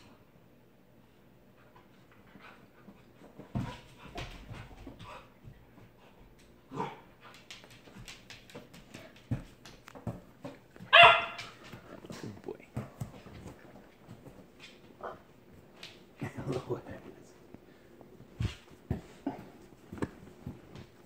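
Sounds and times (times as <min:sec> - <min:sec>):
dog barking: 0:10.9 - 0:11.5.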